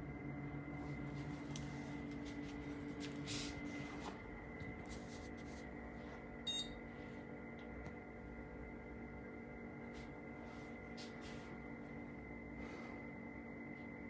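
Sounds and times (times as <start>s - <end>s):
computer fans humming: 0.0s - 14.0s
short beep: 6.5s - 6.8s.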